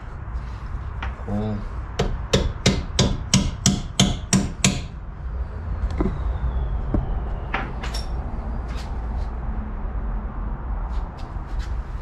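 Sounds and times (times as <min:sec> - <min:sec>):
hammer tap on metal: 0:02.0 - 0:04.9
low rumble: 0:05.0 - 0:11.2.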